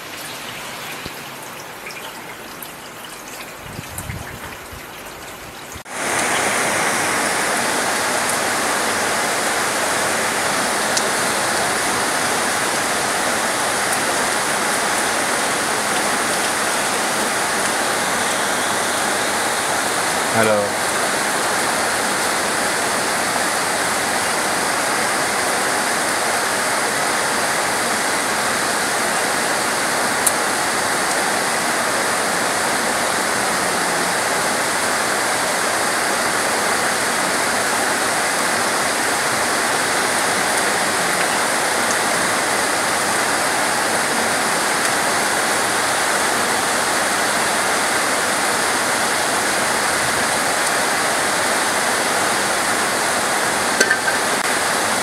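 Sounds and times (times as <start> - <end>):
rain on foliage: 0.0 - 55.0.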